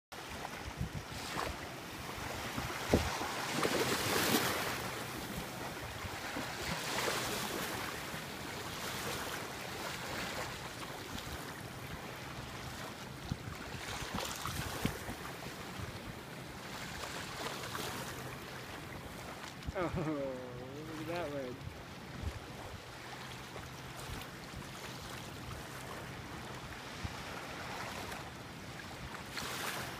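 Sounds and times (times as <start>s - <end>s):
small waves washing onto shore: 0.2s - 29.9s
wind buffeting microphone: 0.5s - 3.6s, 13.2s - 15.2s.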